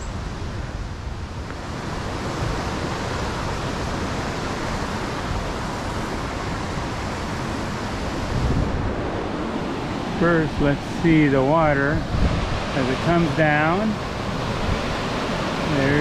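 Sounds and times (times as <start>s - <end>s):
white water rushing: 0.0s - 16.0s.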